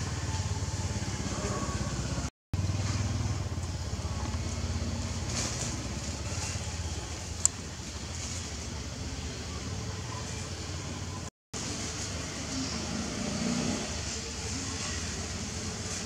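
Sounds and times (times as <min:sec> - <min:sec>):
small engine idling: 0:00.0 - 0:11.3.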